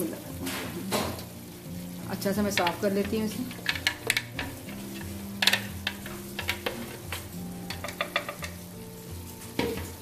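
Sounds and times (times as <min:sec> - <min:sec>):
gravy sizzling: 0:00.0 - 0:10.0
spoon knocking against jar: 0:07.7 - 0:08.6.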